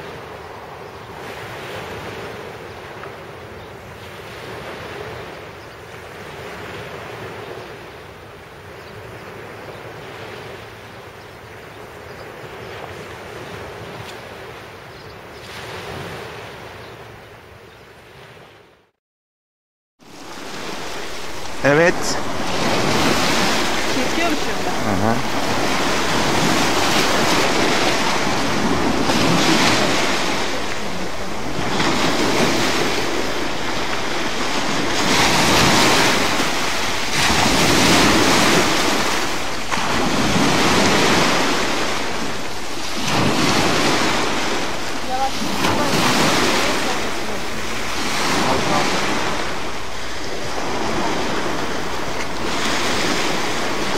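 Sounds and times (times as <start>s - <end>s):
waves washing up pebble beach: 20.1s - 53.9s.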